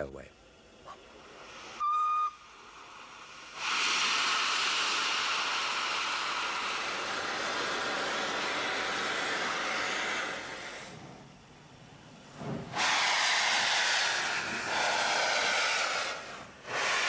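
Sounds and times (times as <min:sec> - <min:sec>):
steam locomotive hissing: 0:00.0 - 0:17.0
whistle note: 0:01.8 - 0:02.4.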